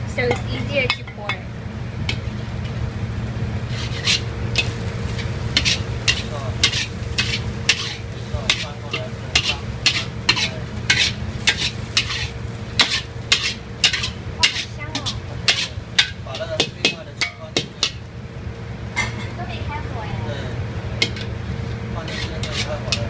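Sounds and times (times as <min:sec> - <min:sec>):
food sizzling: 0:00.0 - 0:23.0
spatula scraping a wok: 0:03.6 - 0:18.0, 0:21.0 - 0:23.0.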